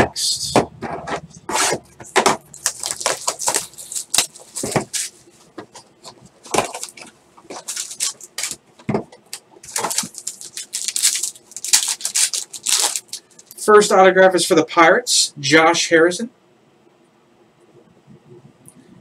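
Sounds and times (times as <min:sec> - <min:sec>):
cardboard scraping and rustling: 0:00.8 - 0:08.6, 0:09.7 - 0:13.0.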